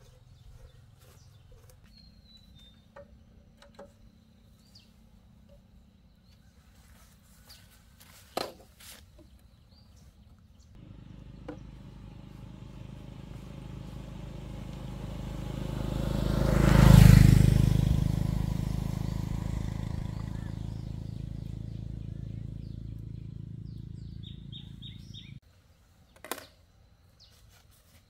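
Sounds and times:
engine running: 0:10.8 - 0:25.4.

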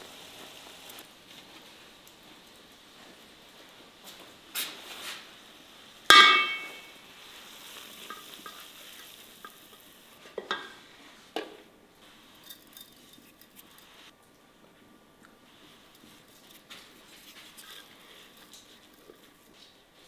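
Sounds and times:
frying pan clanging on bowl: 0:06.1 - 0:07.0.

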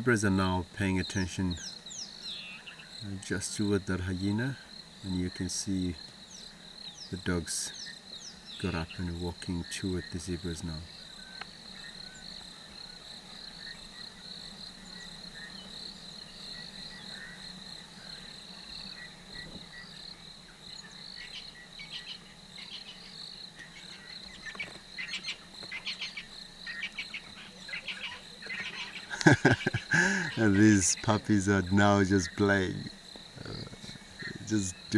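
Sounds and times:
insects trilling: 0:00.0 - 0:34.9.

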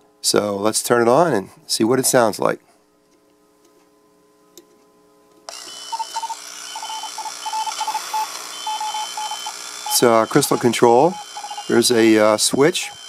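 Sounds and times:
morse code beeping: 0:05.8 - 0:13.0
radio band hiss: 0:09.8 - 0:13.0.

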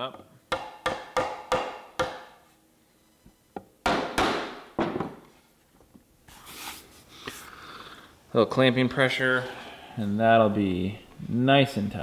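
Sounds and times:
hammer knocking on wood: 0:00.5 - 0:02.3, 0:03.8 - 0:05.2.

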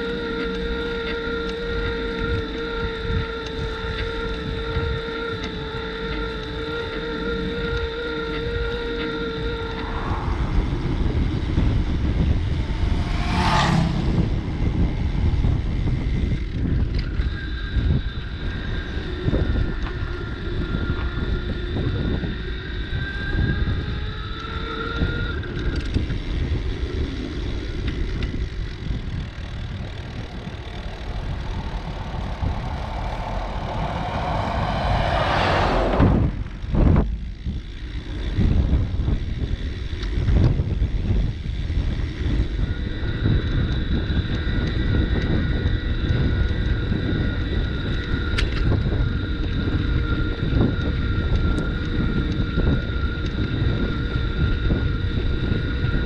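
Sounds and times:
bicycle rolling rumble: 0:00.0 - 0:56.0
faint steady whine: 0:00.0 - 0:56.0
wind buffeting microphone: 0:00.0 - 0:56.0
rush of noise: 0:07.6 - 0:20.0, 0:28.7 - 0:37.7.

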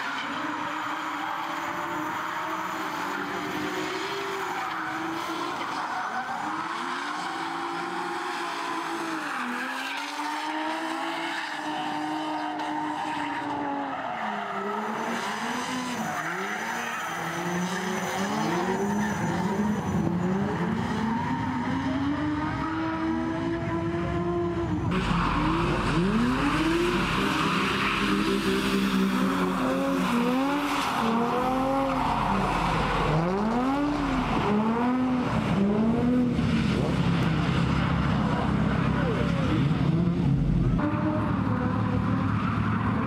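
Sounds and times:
car engines revving: 0:00.0 - 0:43.0.

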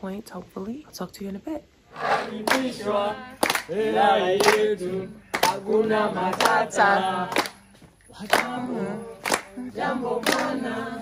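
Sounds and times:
group of voices singing: 0:01.9 - 0:11.0
hands clapping: 0:02.2 - 0:02.8, 0:03.4 - 0:03.7, 0:04.4 - 0:04.7, 0:05.3 - 0:10.6.

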